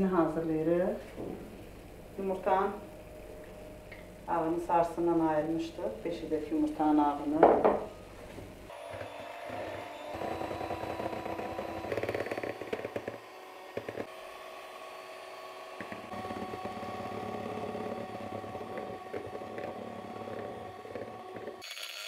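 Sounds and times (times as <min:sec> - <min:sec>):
electric mixer motor whine: 0:08.7 - 0:22.0.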